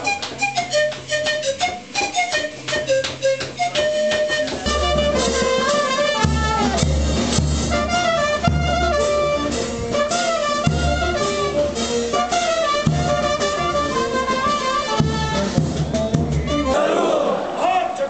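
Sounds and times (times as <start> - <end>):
brass band playing: 4.0 - 17.4.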